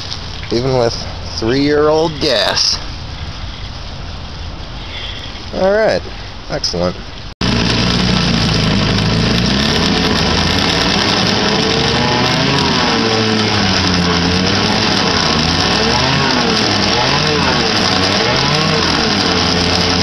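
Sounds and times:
outboard engine running: 7.4s - 20.0s
propeller churning water: 7.4s - 20.0s.

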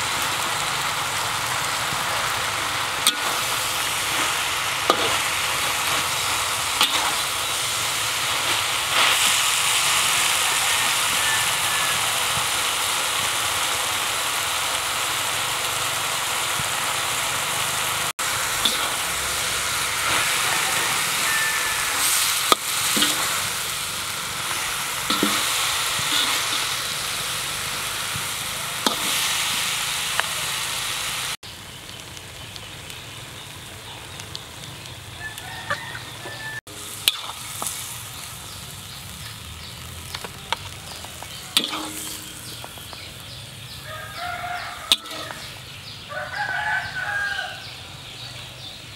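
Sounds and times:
vegetables sizzling in a wok: 0.0s - 48.9s
metal spoon scraping a pan: 3.0s - 7.4s, 18.6s - 23.6s, 24.4s - 27.0s, 28.8s - 29.4s, 41.6s - 42.8s, 44.9s - 45.6s.

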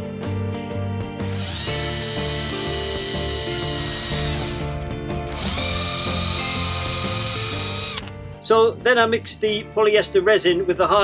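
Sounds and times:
background music: 0.0s - 11.0s
cordless drill whirring: 1.2s - 8.2s.

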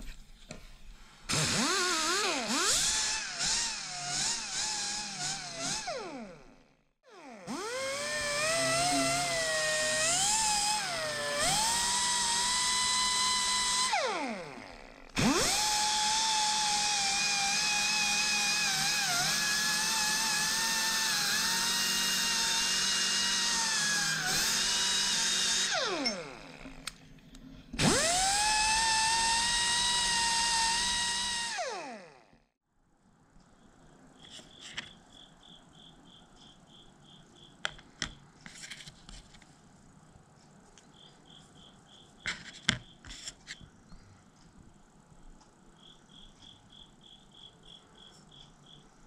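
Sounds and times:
die grinder whine: 1.3s - 27.0s, 27.7s - 32.4s.

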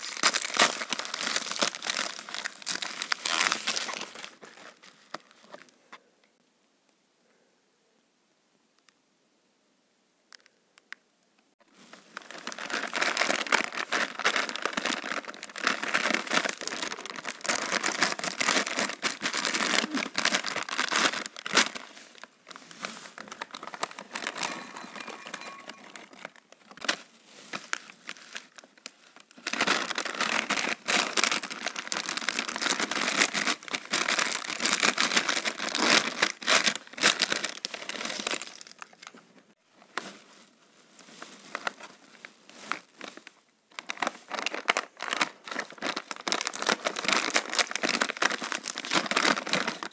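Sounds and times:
plastic packets crinkling: 0.0s - 5.7s, 11.6s - 39.2s, 41.2s - 49.9s
corn puffs poured into glass bowl: 24.1s - 26.3s.

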